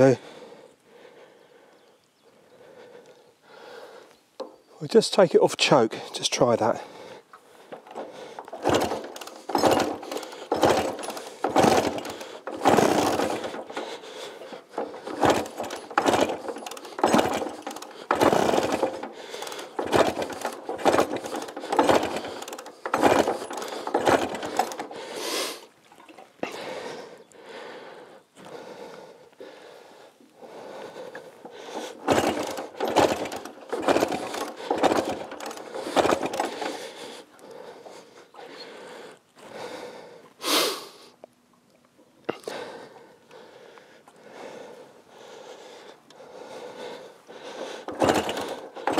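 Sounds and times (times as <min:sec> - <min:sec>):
motorcycle kick-start clatter: 0:07.0 - 0:26.6, 0:30.7 - 0:38.8, 0:46.7 - 0:48.9.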